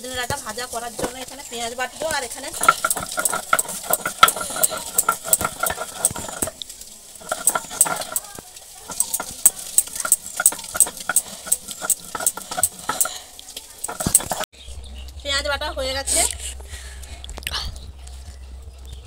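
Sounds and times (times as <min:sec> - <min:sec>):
stone knocking and scraping on stone: 0:02.5 - 0:06.6, 0:07.2 - 0:13.2, 0:13.8 - 0:14.5.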